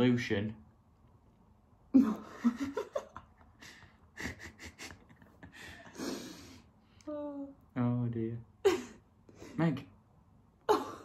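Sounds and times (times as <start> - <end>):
woman laughing: 1.9 - 6.4, 8.6 - 9.0, 10.7 - 11.0.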